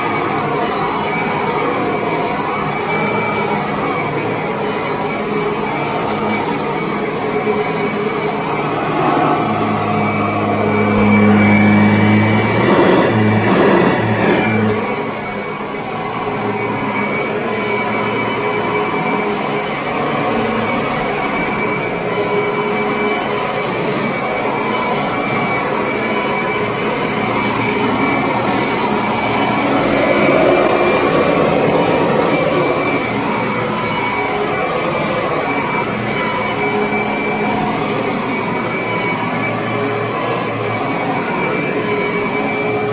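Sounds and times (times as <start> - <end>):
vacuum cleaner running over carpet: 0.0 - 42.9.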